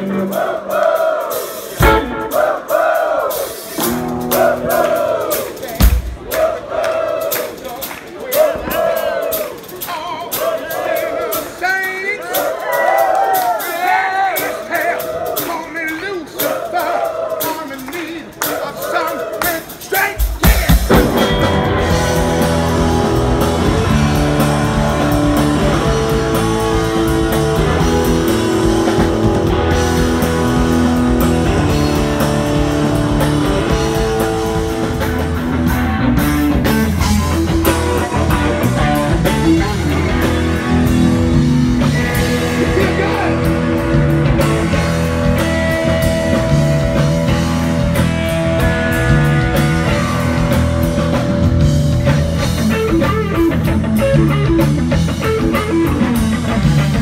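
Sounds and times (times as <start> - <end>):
live rock band playing: 0.0 - 57.0
electric guitar lead: 1.8 - 2.4, 20.9 - 57.0.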